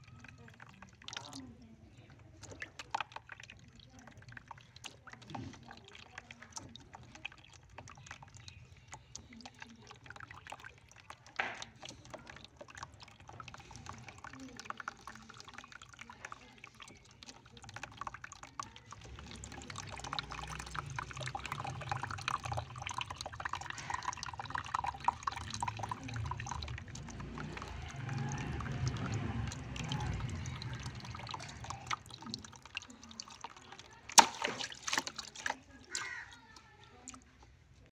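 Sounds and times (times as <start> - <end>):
water jets splashing into tub: 0.0 - 37.9
water balloon bursting: 33.9 - 36.4.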